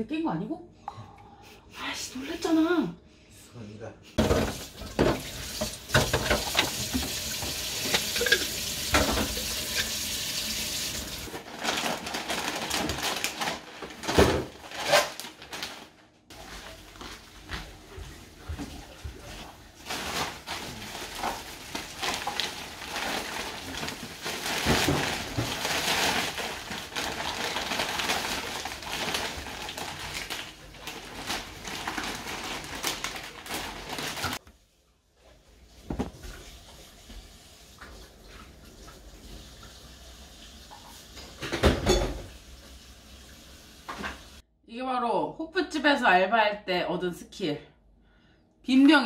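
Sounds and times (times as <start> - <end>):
bottles clattering: 4.2 - 10.0
tap running into sink: 4.2 - 10.1
plastic bags crinkling: 11.2 - 17.8, 19.7 - 34.4.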